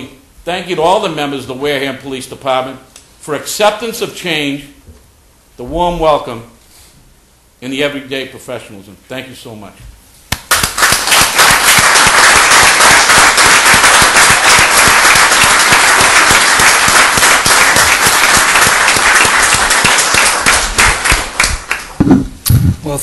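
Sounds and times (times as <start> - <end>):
audience applauding: 10.4 - 22.0.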